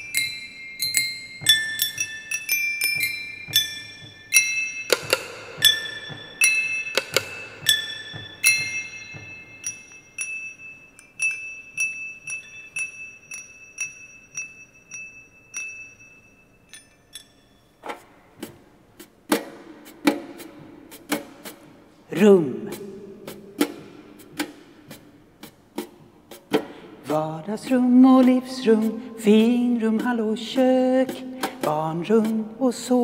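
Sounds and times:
glass bowls struck with stick: 0.0 - 17.8.

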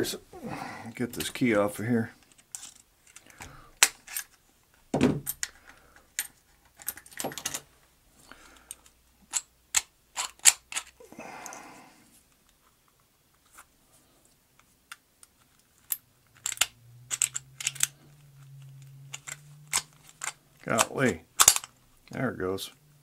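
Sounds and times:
metallic clicks and taps: 15.9 - 18.0.

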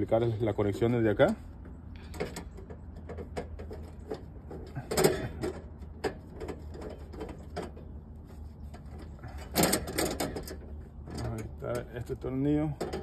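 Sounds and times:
metal cover clicks and scrapes: 2.0 - 11.9, 12.8 - 13.0.

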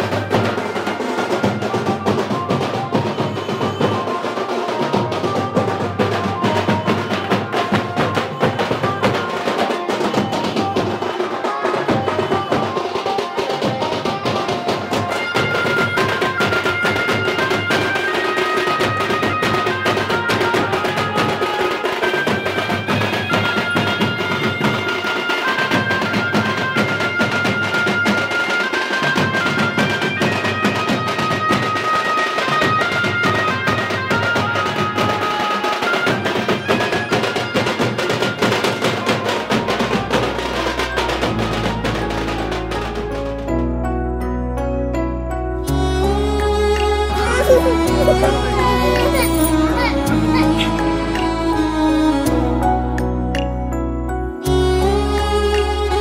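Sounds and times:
barrel drums beaten rapidly: 0.0 - 18.0
reedy wind instrument melody: 0.0 - 25.8, 45.6 - 52.9.

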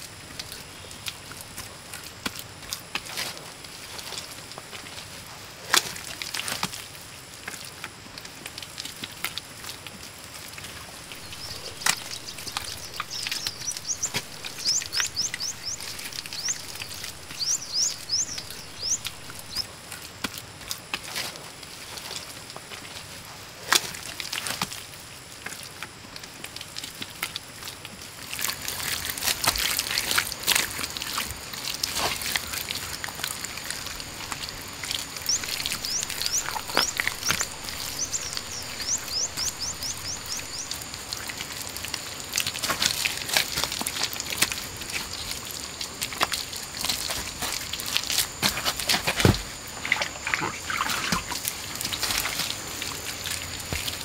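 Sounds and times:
hands squelching wet clay: 10.9 - 22.9, 28.2 - 54.0.

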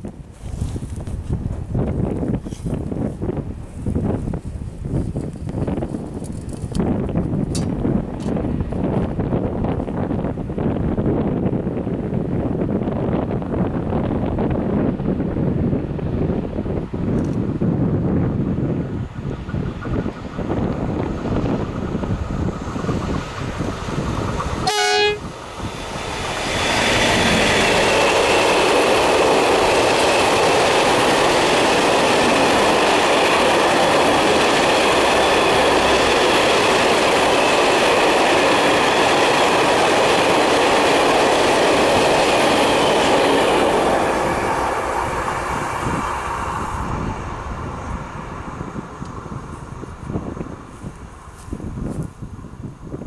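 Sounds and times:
train wheels rushing on rails: 0.0 - 53.0
locomotive horn blast: 24.6 - 25.3.

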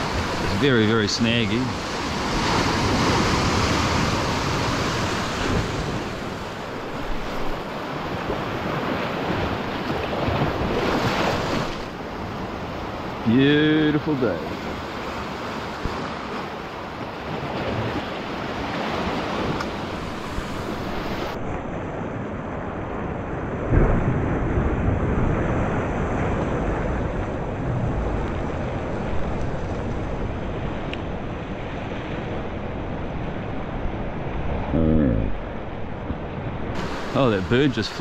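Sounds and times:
ocean waves washing over rocks: 0.0 - 38.0
wind noise on microphone: 18.9 - 34.8.

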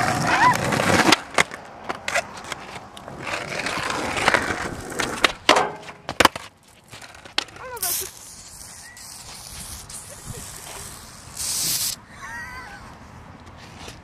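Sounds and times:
skateboard clacks: 0.0 - 7.6
skateboard wheels rolling on pavement: 0.0 - 14.0
aerosol can hiss: 7.8 - 12.0.

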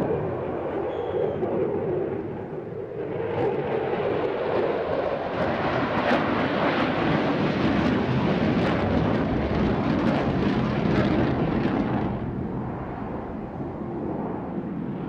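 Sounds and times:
jet engine roar with crackle: 0.0 - 15.0.

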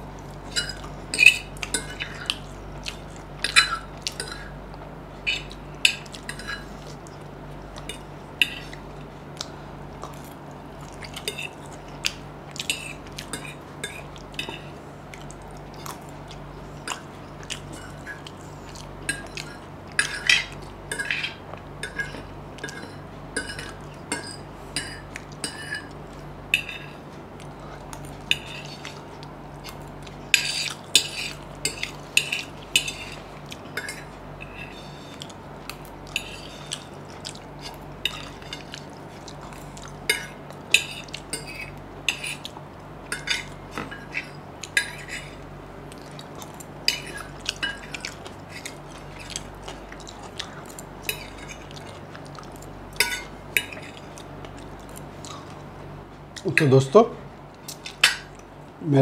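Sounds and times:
chewing and eating sounds: 0.0 - 56.6, 57.4 - 58.8
low steady hum: 0.0 - 59.0
fork clicking and scraping on plate: 27.9 - 55.5.

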